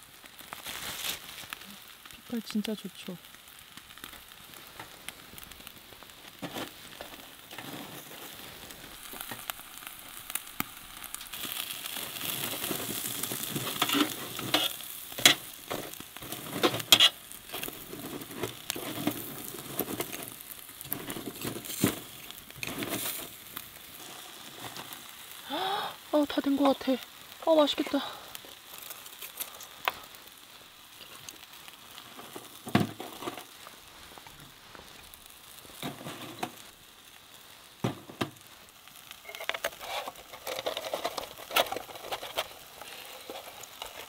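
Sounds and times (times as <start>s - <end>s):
meat sizzling on embers: 0.0s - 44.0s
sharp clicks and pops: 0.5s - 23.8s.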